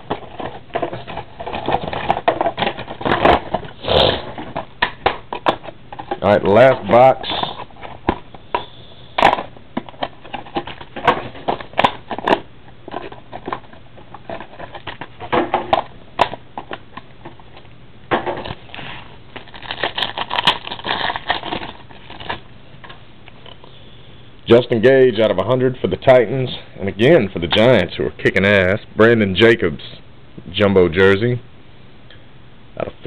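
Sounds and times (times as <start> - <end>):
packaging crinkling and tearing: 18.4 - 23.0.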